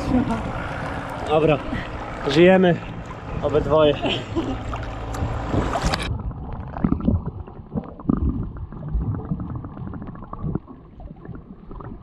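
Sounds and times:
sea water sloshing and splashing: 0.5s - 12.0s
underwater gurgling and bubbling: 4.6s - 12.0s.

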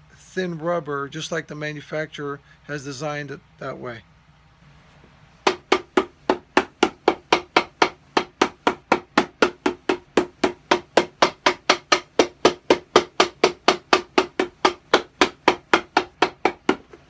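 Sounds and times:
hammer striking a boot: 5.4s - 17.0s.

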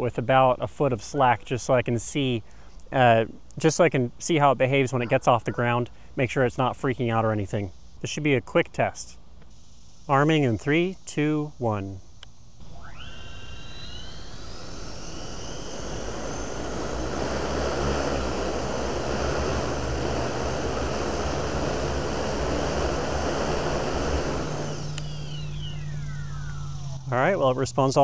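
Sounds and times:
propeller wash rushing: 12.6s - 27.4s
drone motors whining: 12.6s - 28.0s.

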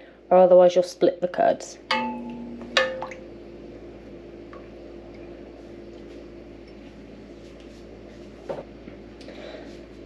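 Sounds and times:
room hum with thin tone: 0.0s - 10.0s
metal ladle clinking on pot: 1.9s - 3.2s.

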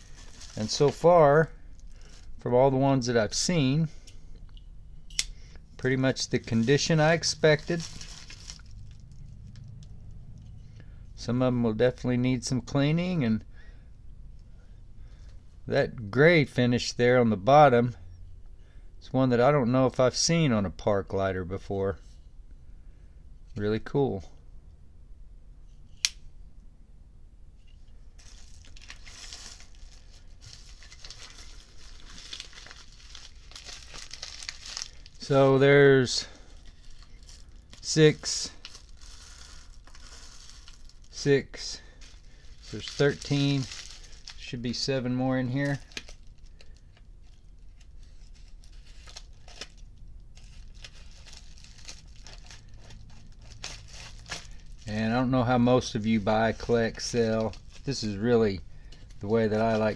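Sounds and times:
bubble mailer crinkling: 0.0s - 3.0s, 5.8s - 9.8s, 28.2s - 59.9s.

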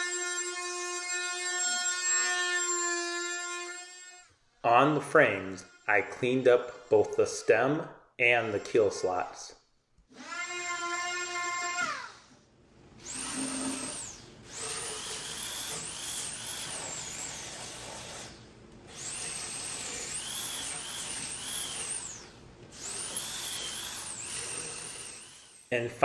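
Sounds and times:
high whining power tool on wood: 0.0s - 4.3s, 10.1s - 12.3s, 13.0s - 25.7s
motor winding down: 13.0s - 25.7s.

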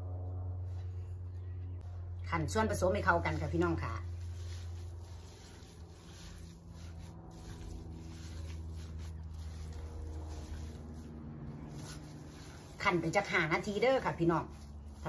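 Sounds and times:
low steady hum: 0.0s - 15.0s
gloved hand squishing minced meat: 3.3s - 15.0s.

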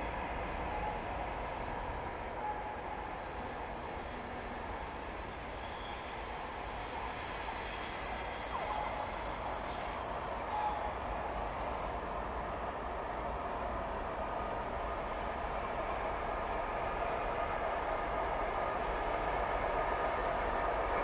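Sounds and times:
diesel train rumbling: 0.0s - 21.0s.

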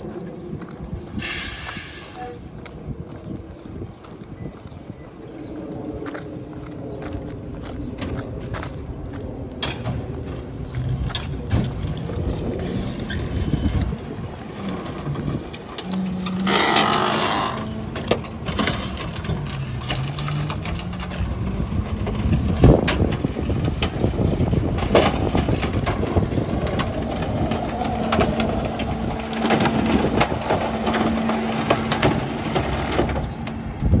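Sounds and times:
garbage truck diesel engine: 9.9s - 34.0s
items thrown into hopper clanking: 17.8s - 33.4s.

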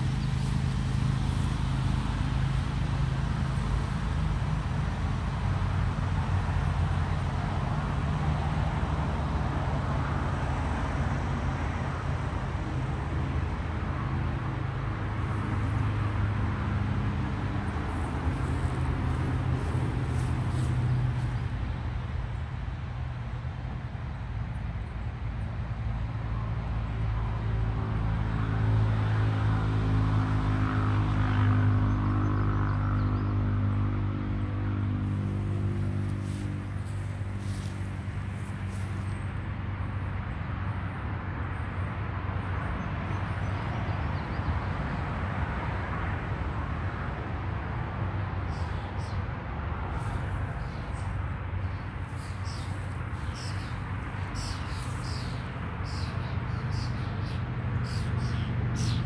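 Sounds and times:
car engine hum: 0.0s - 8.9s, 15.0s - 22.5s, 34.4s - 39.4s, 49.7s - 59.0s
road noise rush: 0.0s - 59.0s.

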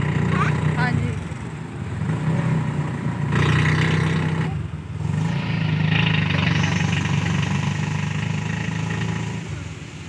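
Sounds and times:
vehicle engine droning: 0.0s - 10.0s
wheels hissing through water: 5.3s - 10.0s.

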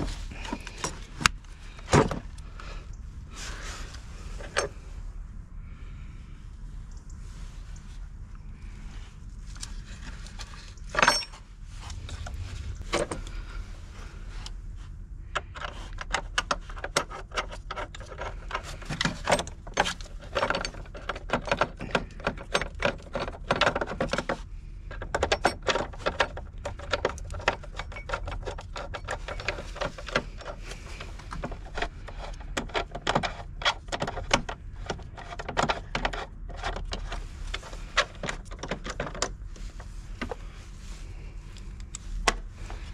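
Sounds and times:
metallic clicks and scrapes of tools: 15.3s - 40.4s.

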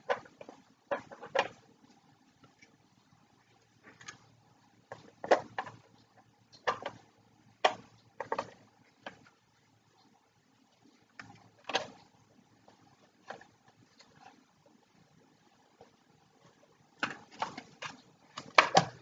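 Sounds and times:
plastic parts clicking and knocking: 0.0s - 1.7s, 3.6s - 9.4s, 11.1s - 14.4s, 15.8s - 19.0s.

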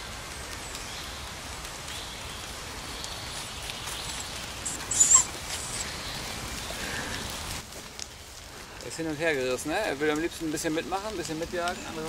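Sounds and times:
light rain on leaves: 0.0s - 12.0s
puppy high-pitched yelp: 4.2s - 5.8s.

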